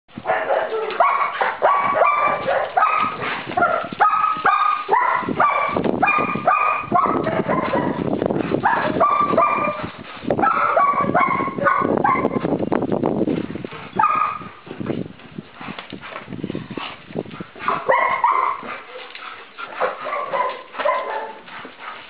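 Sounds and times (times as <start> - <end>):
dog barking rapidly: 0.2 - 12.4, 14.0 - 14.5, 17.7 - 18.7, 19.8 - 21.5.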